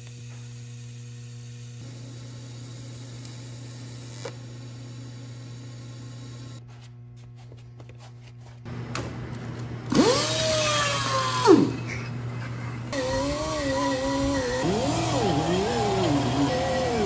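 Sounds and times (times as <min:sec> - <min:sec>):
welding arc humming: 0:00.0 - 0:06.6, 0:08.7 - 0:17.0
angle grinder motor whining: 0:09.9 - 0:12.0, 0:12.9 - 0:17.0.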